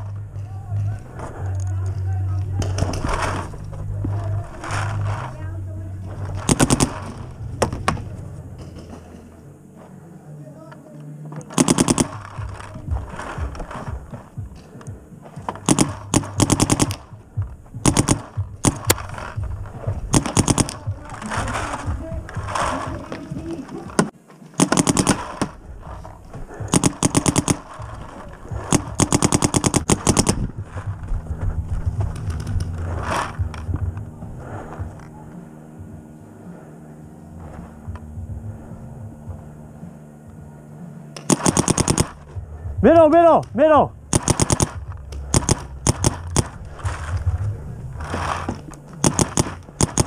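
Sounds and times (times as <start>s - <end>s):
paintball marker firing: 6.3s - 8.2s, 11.4s - 14.8s, 15.4s - 23.2s, 24.0s - 25.6s, 26.6s - 30.5s, 41.1s - 42.4s, 44.1s - 47.4s, 48.0s - 50.0s.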